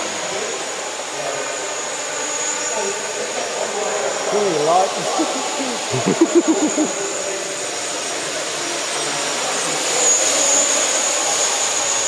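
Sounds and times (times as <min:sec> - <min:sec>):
drone propellers whining: 0:01.8 - 0:07.9.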